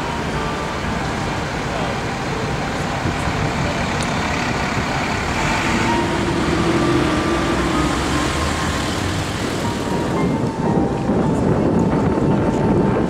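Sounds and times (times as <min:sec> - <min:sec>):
passing vehicle engine hum: 0:00.0 - 0:13.0
cars driving past: 0:02.3 - 0:10.4.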